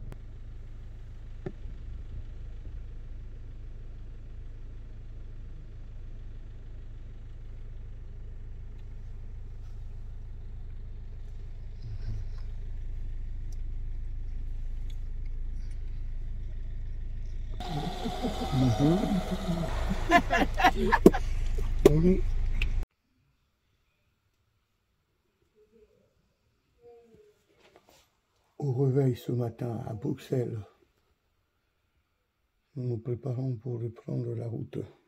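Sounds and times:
car cabin rumble: 17.4s - 22.8s.

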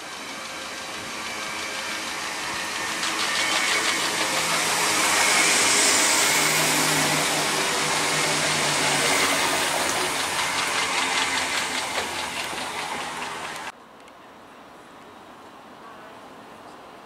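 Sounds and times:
electric train motor hum: 0.0s - 13.7s
train running noise rush: 0.0s - 13.8s
wheels clicking over rail joints: 7.3s - 13.7s.

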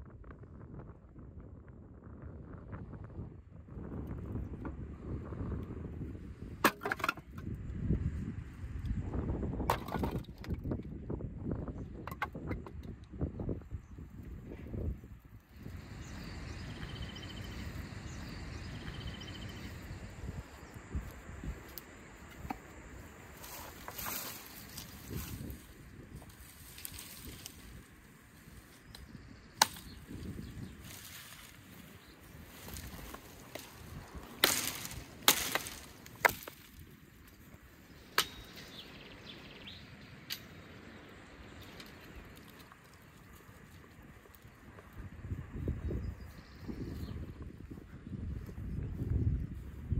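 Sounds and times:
axe chopping wood: 6.6s - 7.4s, 29.6s - 29.9s, 34.4s - 36.6s, 38.2s - 38.5s
wood cracking: 6.6s - 7.4s, 9.7s - 10.8s, 32.5s - 37.4s
faint birdsong chirps: 10.7s - 49.9s
faint high chirps: 15.6s - 20.8s.

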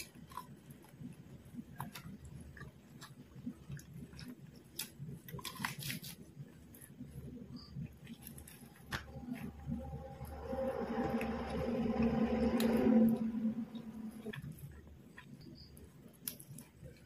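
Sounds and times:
chewing and lip smacks: 0.0s - 9.5s.

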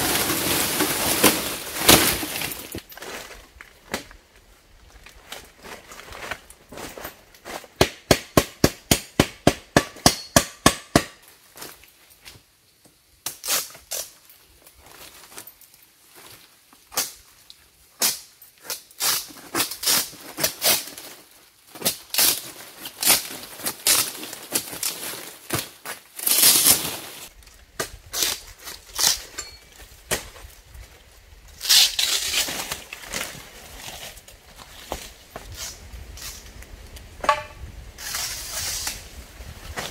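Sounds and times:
dry palm fronds rustling: 0.0s - 7.8s, 13.4s - 39.9s
sharp knocks: 37.2s - 37.6s.

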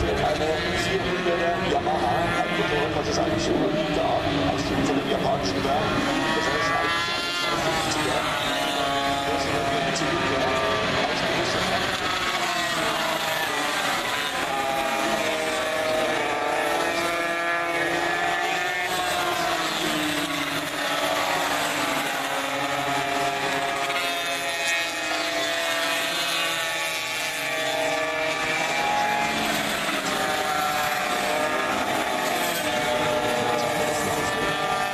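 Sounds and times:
racing motorcycles at high revs: 0.0s - 34.9s.

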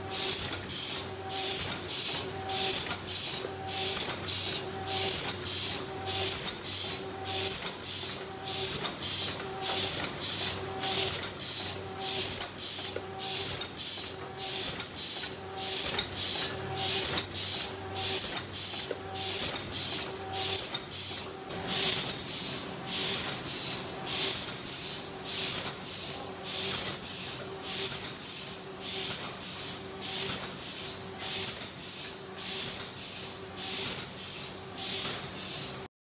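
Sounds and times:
machine hum: 0.0s - 28.4s
paper bowl machine hissing: 0.0s - 35.9s.

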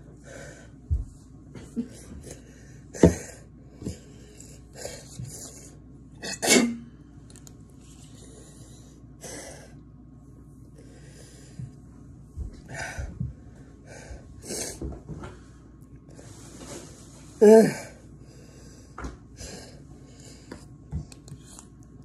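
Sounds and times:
person coughing and sputtering: 6.2s - 6.8s.

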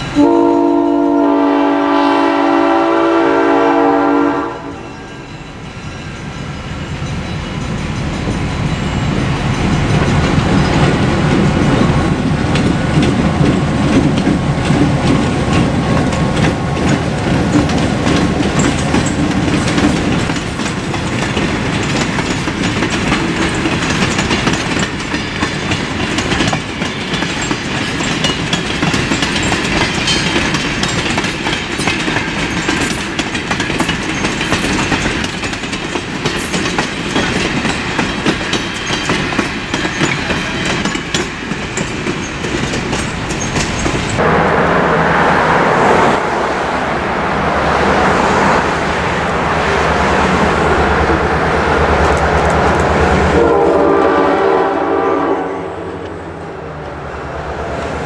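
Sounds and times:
freight train wheels clicking: 5.5s - 44.3s, 49.2s - 54.2s.

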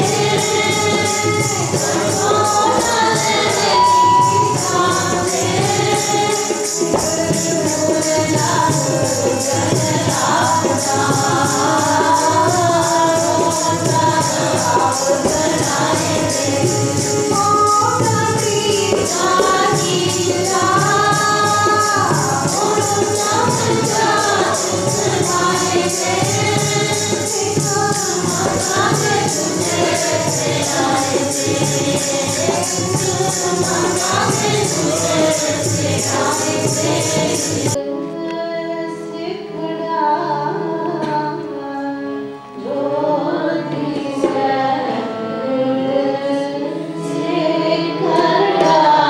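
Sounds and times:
high-pitched percussion beat: 0.0s - 37.8s
voices singing along: 0.0s - 41.9s, 42.6s - 49.0s
harmonium: 0.0s - 49.0s
person singing a hymn: 0.0s - 49.0s
tabla: 0.0s - 49.0s.

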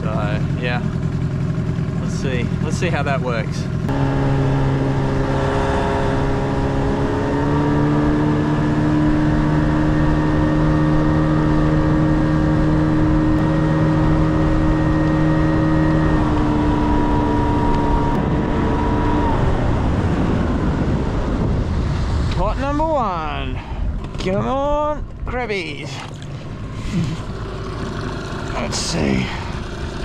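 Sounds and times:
outboard motor humming: 0.0s - 21.8s, 23.6s - 30.0s
wind: 0.0s - 30.0s
water noise: 3.9s - 24.4s, 25.1s - 30.0s.

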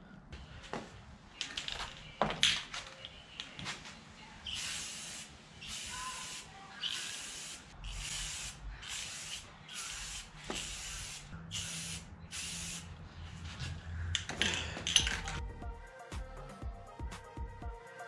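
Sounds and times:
spray paint can hissing: 4.5s - 12.9s.

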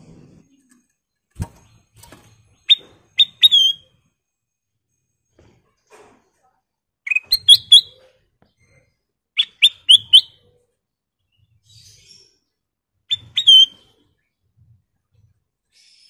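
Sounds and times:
bird singing whistled notes: 2.7s - 3.9s, 7.1s - 8.0s, 9.4s - 10.5s, 13.1s - 13.8s.

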